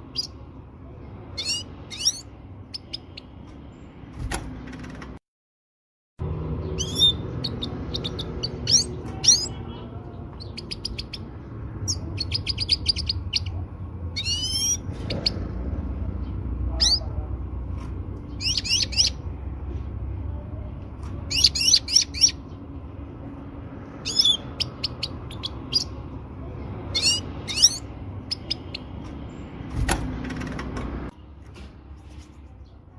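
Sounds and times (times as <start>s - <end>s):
goldfinch twittering chirps: 18.4s - 19.2s.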